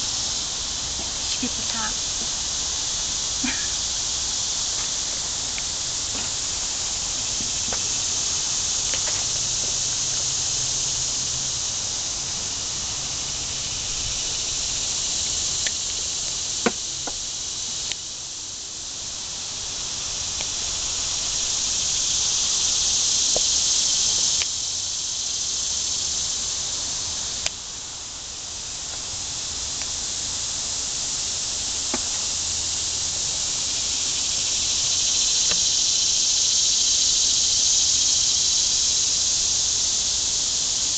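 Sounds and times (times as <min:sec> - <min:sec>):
cicadas buzzing: 0:00.0 - 0:40.9
faint ticks: 0:04.8 - 0:06.4, 0:24.4 - 0:24.6, 0:35.3 - 0:35.7.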